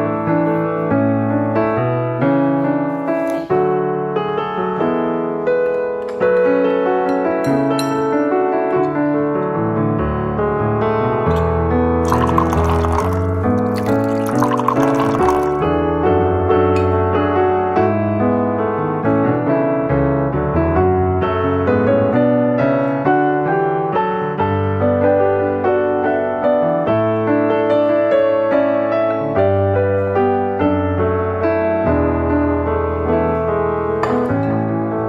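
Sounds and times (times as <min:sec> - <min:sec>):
gentle piano music: 0:00.0 - 0:35.0.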